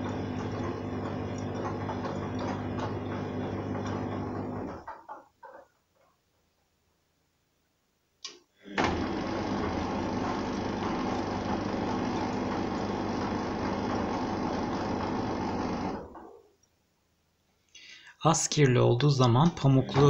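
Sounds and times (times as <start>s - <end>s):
washing machine click: 0.0s - 5.1s
washing machine drum tumbling: 0.0s - 5.2s, 8.8s - 16.2s.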